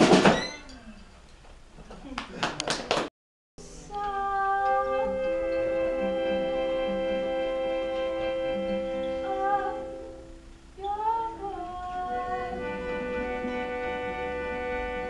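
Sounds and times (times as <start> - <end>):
acoustic guitar: 3.6 - 15.0
woman singing: 3.8 - 5.6, 9.1 - 10.1, 10.8 - 12.9.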